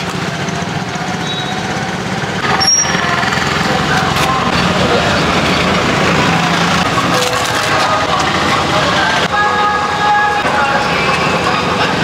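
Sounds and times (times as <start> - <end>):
engine-like drone: 0.0 - 12.0
traffic: 0.0 - 12.0
indistinct voices: 2.4 - 12.0.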